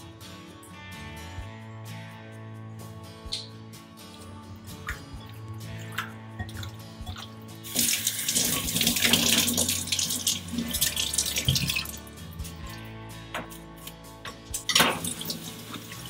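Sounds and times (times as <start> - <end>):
soft background music: 0.0 - 16.0
tap water running into sink: 5.9 - 12.1, 14.6 - 16.0.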